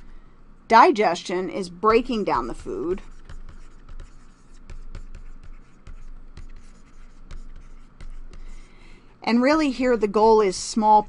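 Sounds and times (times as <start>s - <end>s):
low steady hum: 0.0s - 11.0s
stylus tapping and scratching: 1.9s - 8.8s, 9.5s - 11.0s.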